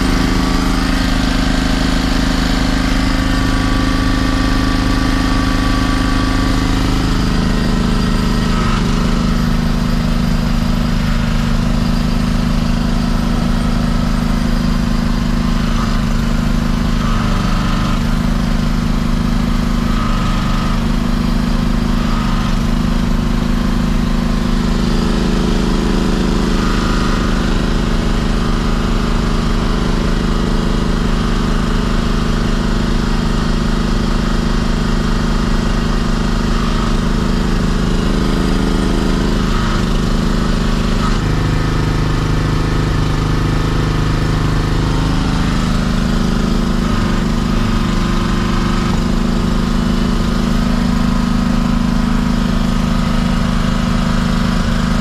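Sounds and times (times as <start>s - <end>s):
engine running steadily: 0.0s - 55.0s.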